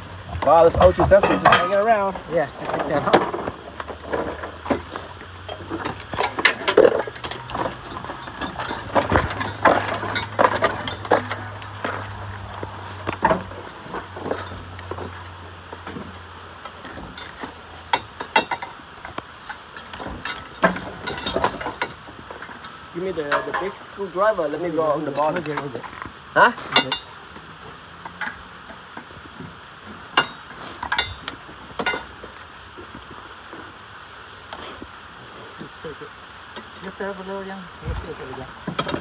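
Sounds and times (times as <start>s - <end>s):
low steady hum: 0.0s - 39.0s
metal tools clinking: 0.8s - 3.4s, 5.4s - 15.4s, 19.4s - 22.0s, 22.6s - 23.9s, 26.6s - 27.2s, 30.2s - 31.2s.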